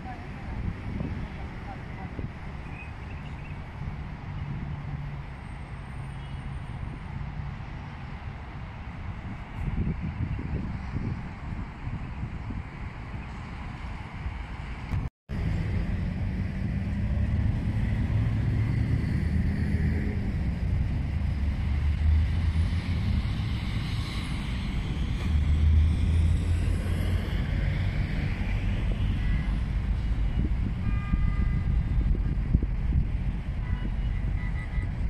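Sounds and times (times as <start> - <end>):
road traffic passing: 0.0 - 35.0.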